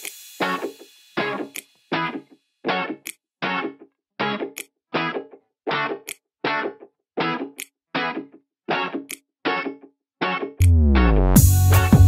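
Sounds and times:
short high hiss: 0.0 - 1.9
distorted electric guitar chords: 10.3 - 12.0.

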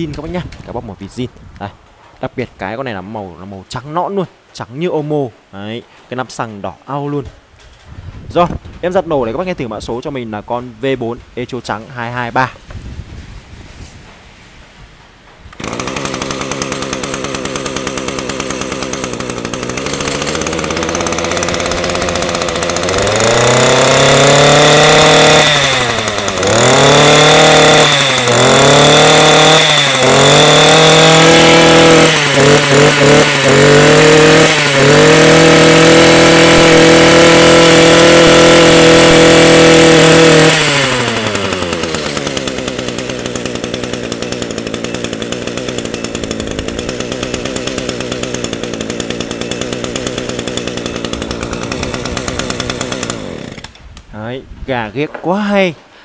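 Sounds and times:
brush cutter engine revving: 15.5 - 54.1.

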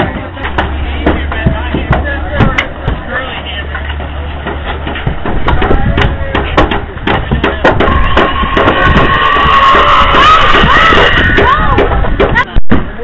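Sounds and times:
hammers driving nails into wood: 4.4 - 8.7
held musical note: 7.6 - 11.4.

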